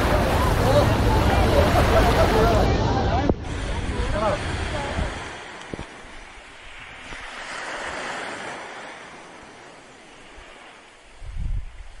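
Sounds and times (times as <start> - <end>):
waterfall roaring: 0.0 - 5.1
wind buffeting microphone: 0.0 - 12.0.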